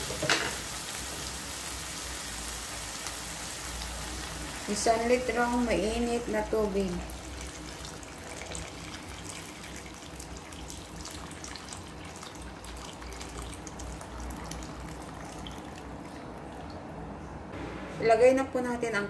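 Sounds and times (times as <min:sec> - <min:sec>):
water pouring into sauce: 0:07.0 - 0:16.9.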